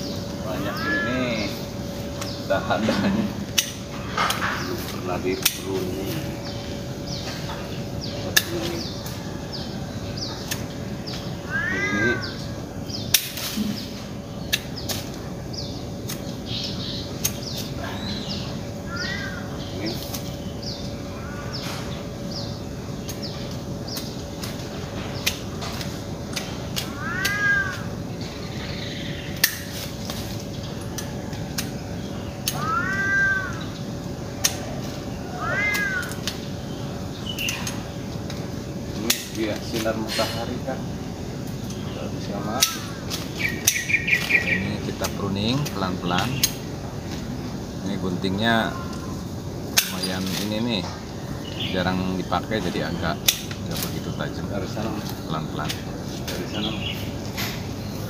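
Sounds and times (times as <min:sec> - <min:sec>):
cat meowing: 0:00.5 - 0:01.6, 0:11.4 - 0:12.4, 0:18.9 - 0:19.6, 0:26.8 - 0:27.9, 0:32.4 - 0:33.6, 0:35.2 - 0:36.3, 0:48.7 - 0:49.2.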